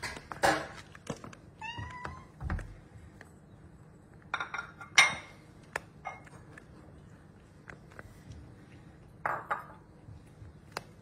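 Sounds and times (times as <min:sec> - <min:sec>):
plate clinking on tiled floor: 0:04.3 - 0:05.4, 0:09.2 - 0:09.9.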